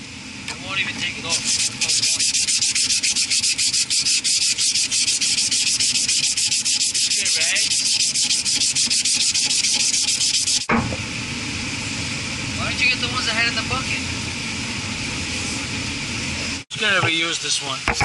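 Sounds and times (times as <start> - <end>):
cloth rubbing a metal shaft: 1.2 - 10.7.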